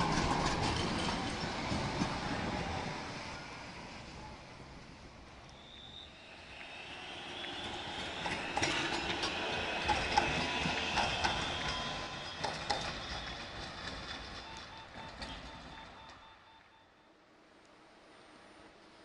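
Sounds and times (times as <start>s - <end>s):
tram wheels clattering over rail joints: 0.0s - 16.4s
tram high whine: 0.0s - 19.0s.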